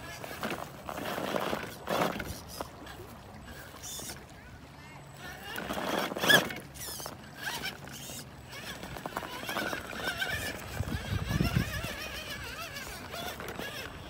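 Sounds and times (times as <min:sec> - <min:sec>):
truck rumbling over dirt: 0:00.0 - 0:04.2, 0:05.2 - 0:14.0
electric motor whining: 0:05.1 - 0:14.0.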